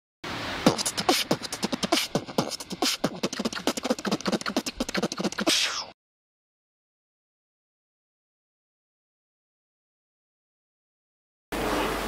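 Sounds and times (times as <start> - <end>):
beatbox-like percussion: 0.6 - 6.0.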